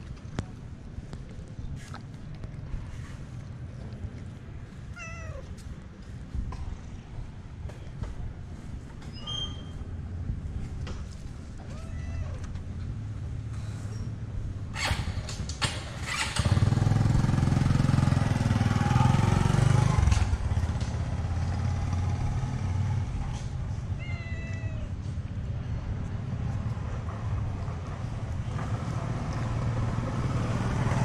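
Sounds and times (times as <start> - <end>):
low engine hum: 0.0 - 31.0
cat meowing: 4.9 - 5.6, 11.6 - 12.6, 23.9 - 25.0.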